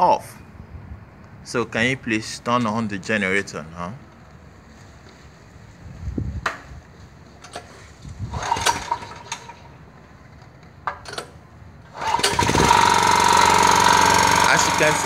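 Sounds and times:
generator engine running: 0:08.2 - 0:10.5, 0:11.8 - 0:15.0.

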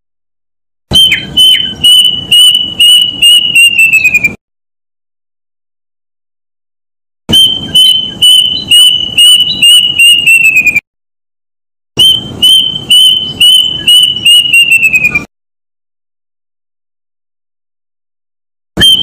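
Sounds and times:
cuckoo calling: 0:00.9 - 0:04.4, 0:07.3 - 0:10.8, 0:12.0 - 0:15.3, 0:18.8 - 0:19.0.

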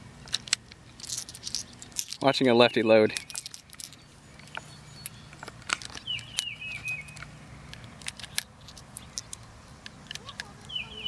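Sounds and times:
cartridges clinking against metal: 0:01.0 - 0:07.3
falling chirps: 0:04.0 - 0:07.3.

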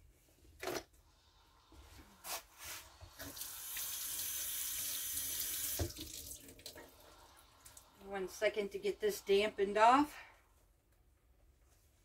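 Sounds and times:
water running into sink: 0:03.1 - 0:08.0
kitchen tap turning on: 0:03.2 - 0:06.8.

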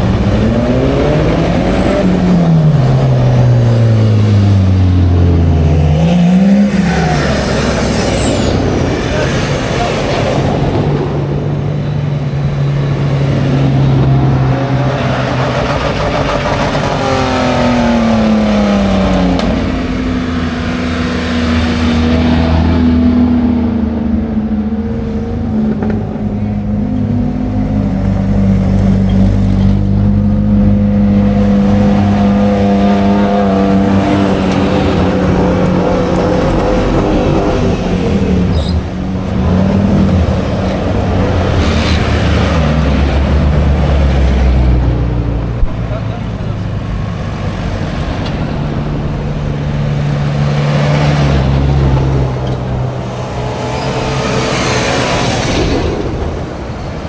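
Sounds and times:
off-road vehicle engines revving: 0:00.0 - 0:57.0.

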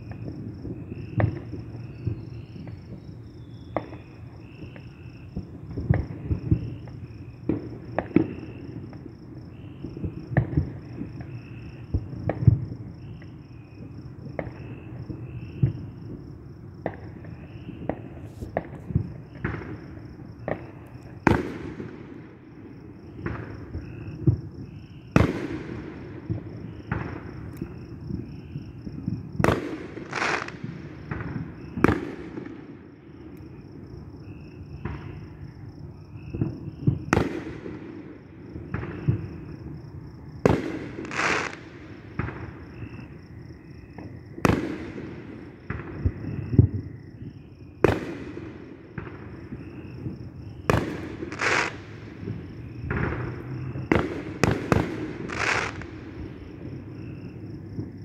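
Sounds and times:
crickets chirping: 0:00.0 - 0:58.0
fireworks banging: 0:29.4 - 0:32.6, 0:40.5 - 0:42.5, 0:50.7 - 0:56.1.

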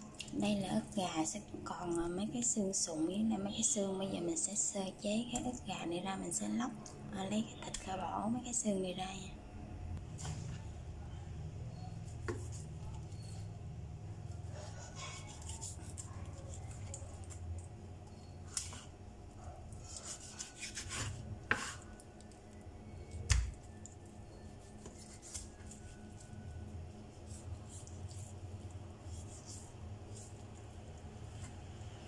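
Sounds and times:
low steady hum: 0:00.0 - 0:32.0
knife cutting and scraping meat: 0:14.3 - 0:17.5, 0:19.7 - 0:32.0.

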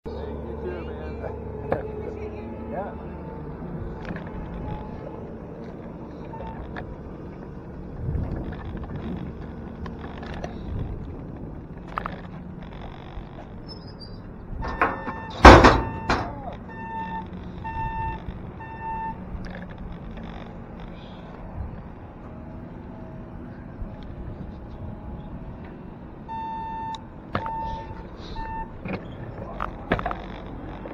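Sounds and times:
short electronic beeps: 0:04.4 - 0:05.1, 0:06.2 - 0:06.6, 0:13.7 - 0:19.2, 0:26.3 - 0:28.8
loud thunk: 0:14.7 - 0:16.3.

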